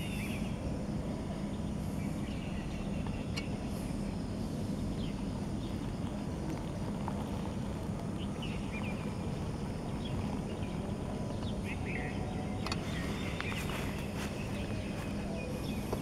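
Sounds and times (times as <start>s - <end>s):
bird chirps: 0.0s - 0.6s, 8.2s - 16.0s
faint hum: 0.0s - 16.0s
steady low rumble: 0.0s - 16.0s.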